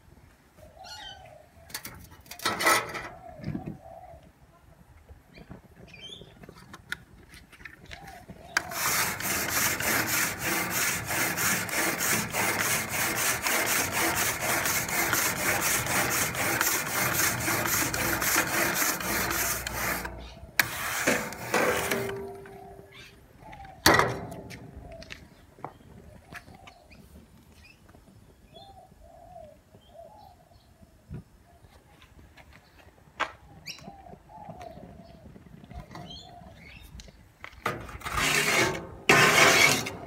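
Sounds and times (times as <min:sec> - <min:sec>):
grill brush scrubbing metal grates: 0:08.6 - 0:22.8, 0:37.7 - 0:40.0.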